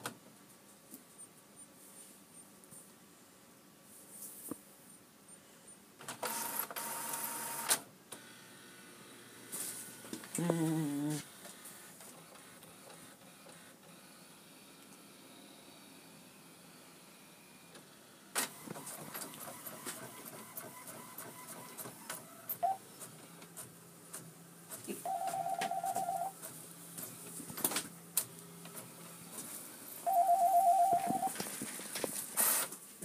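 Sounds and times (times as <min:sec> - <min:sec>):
printer paper feed clicking: 0:11.4 - 0:13.9, 0:17.8 - 0:24.8.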